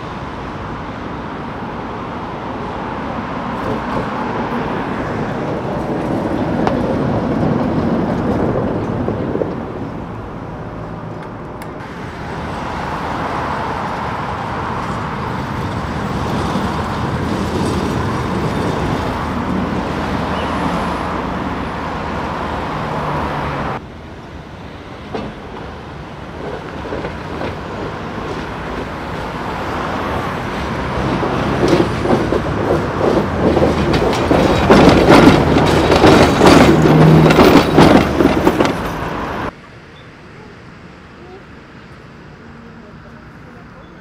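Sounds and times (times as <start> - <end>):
car passing: 0.0 - 39.6
tram wheels clattering on rails: 2.6 - 22.9, 24.9 - 39.6.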